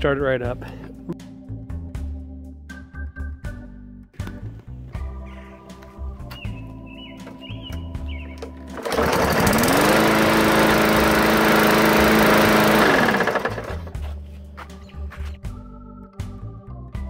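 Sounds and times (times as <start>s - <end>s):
lawn mower engine running: 8.3s - 14.0s.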